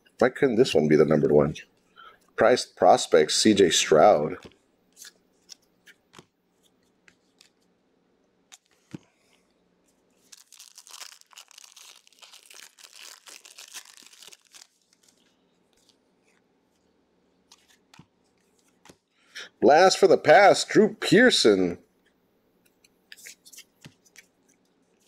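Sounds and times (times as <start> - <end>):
cards being flipped: 4.4 - 7.7, 13.8 - 19.0, 22.7 - 25.0
card pack wrapper tearing: 10.2 - 15.2.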